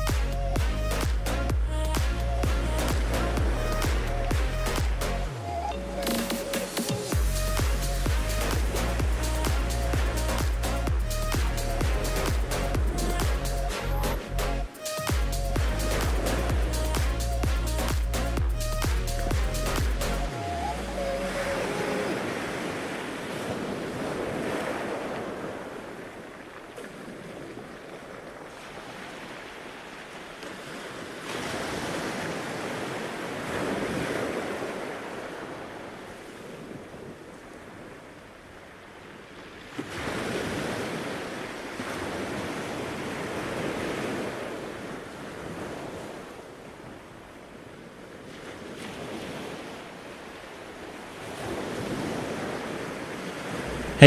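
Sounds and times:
wind on microphone: 0.0 - 14.6
surf breaking on beach: 6.0 - 17.2, 20.6 - 47.6, 48.2 - 54.0.

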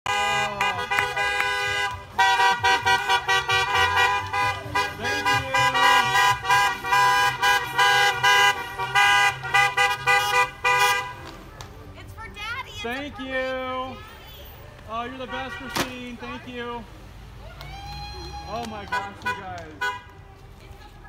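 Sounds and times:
car horns honking: 0.0 - 11.4, 13.3 - 16.8, 18.5 - 20.2.

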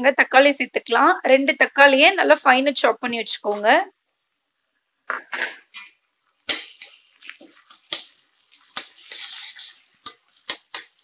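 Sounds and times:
wet squishing of food: 6.6 - 11.0
spoon clinking and scraping metal: 7.6 - 11.0.

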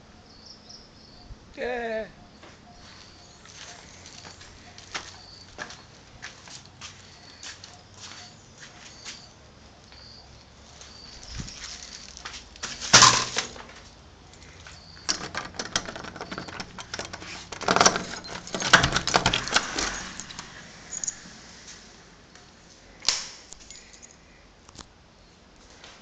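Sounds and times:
key clicking in lock: 15.0 - 21.2
keys jangling: 15.1 - 21.2, 23.6 - 24.2.

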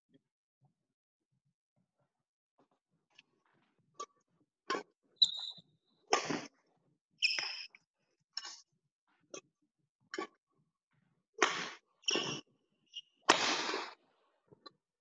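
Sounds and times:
shoes squeaking on court floor: 5.2 - 6.5, 7.2 - 7.8, 11.4 - 13.2
racket hitting shuttlecock: 13.3 - 14.0.

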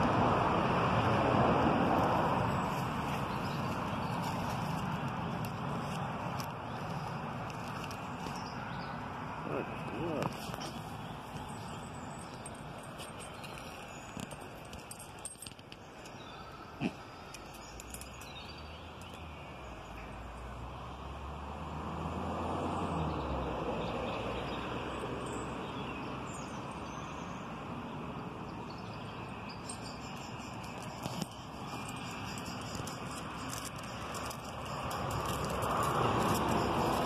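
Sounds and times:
vehicle passing with low rumble: 0.0 - 15.0, 16.4 - 37.0
puppy claws ticking on stone: 30.6 - 37.0.

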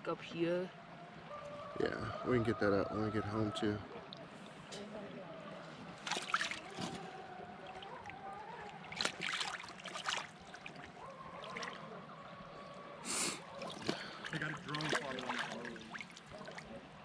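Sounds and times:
water splashing and sloshing: 3.5 - 17.0.

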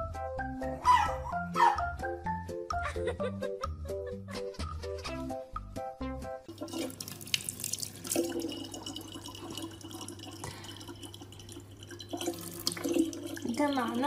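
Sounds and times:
tap water running into bottle: 6.5 - 14.0.

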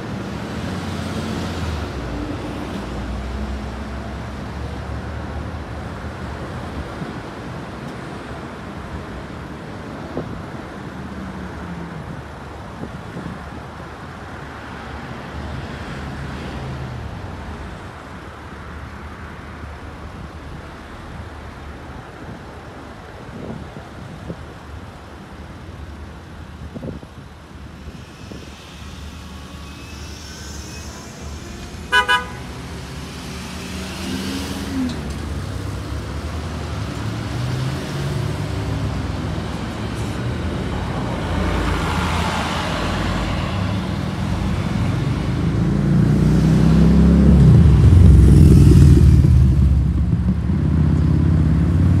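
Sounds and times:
general traffic: 0.0 - 52.0
bus engine accelerating past: 26.8 - 52.0
vehicle horn toots: 31.8 - 32.6.

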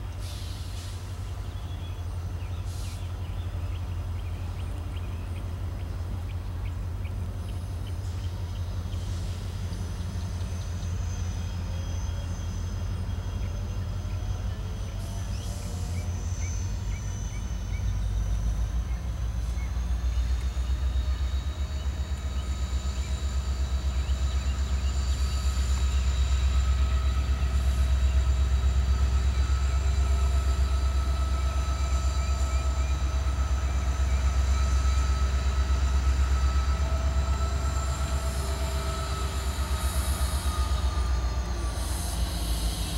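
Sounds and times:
diesel locomotive engine rumbling: 0.0 - 42.9
high-pitched whines: 9.9 - 42.9.

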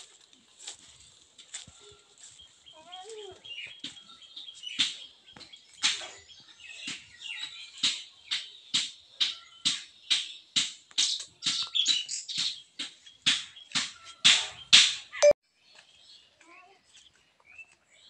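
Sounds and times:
sharp clap-like hits: 5.8 - 6.1, 12.4 - 15.1.

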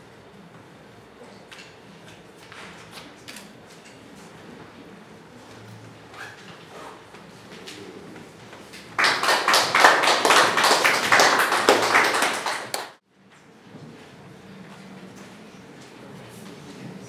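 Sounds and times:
small group applauding: 8.5 - 13.0.

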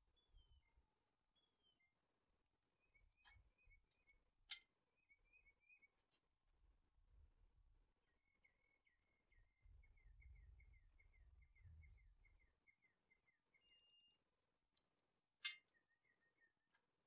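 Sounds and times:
short electronic beep: 13.6 - 14.2.

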